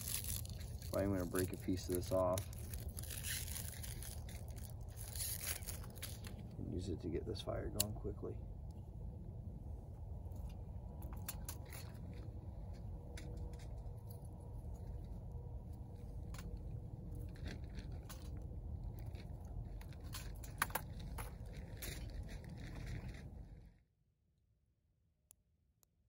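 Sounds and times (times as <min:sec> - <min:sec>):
wood fire crackling: 0:00.0 - 0:07.1, 0:07.7 - 0:23.6
low steady rumble: 0:00.0 - 0:23.8.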